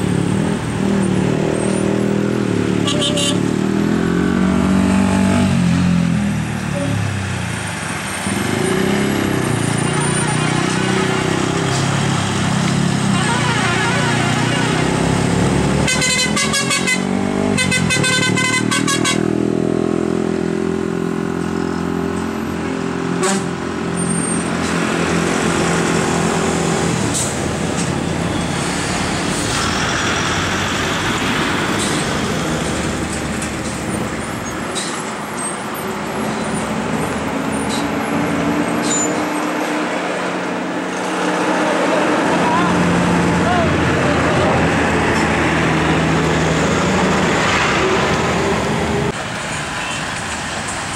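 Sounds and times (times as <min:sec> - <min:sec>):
heavy diesel engines under load: 0:00.0 - 0:50.9
vehicle horn bursts: 0:02.8 - 0:03.4, 0:13.1 - 0:14.9, 0:15.8 - 0:19.3.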